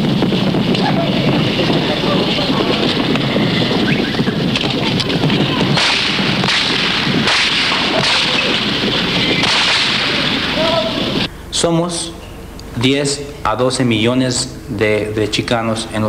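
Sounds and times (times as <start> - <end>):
loud constant rush of noise: 0.0 - 16.0
sharp cracks: 0.6 - 11.3.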